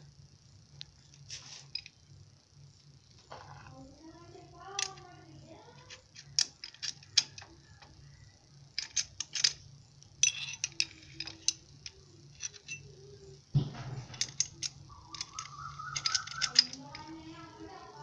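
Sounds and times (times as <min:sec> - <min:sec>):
low steady hum: 0:00.0 - 0:18.0
metallic clicks of hand tools: 0:10.2 - 0:12.9, 0:14.1 - 0:17.1
wavering voice-like call: 0:14.9 - 0:18.0.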